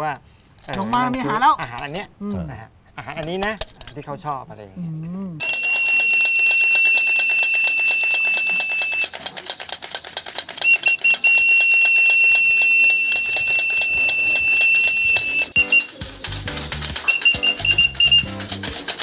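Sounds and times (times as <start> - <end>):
whistle blasts: 5.4 - 9.1, 10.6 - 15.9, 17.1 - 18.2.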